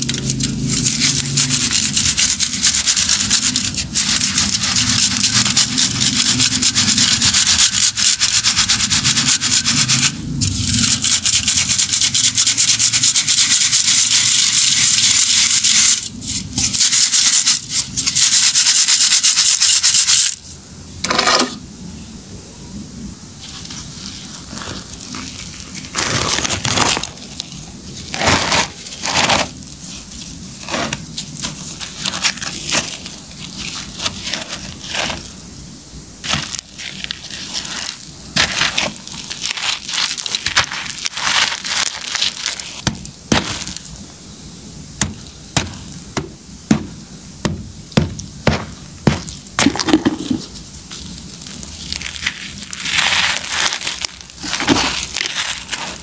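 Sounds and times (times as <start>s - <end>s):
powder pouring with hiss: 0.0s - 20.6s, 23.3s - 56.0s
hands crumbling concrete chunks: 36.2s - 43.9s.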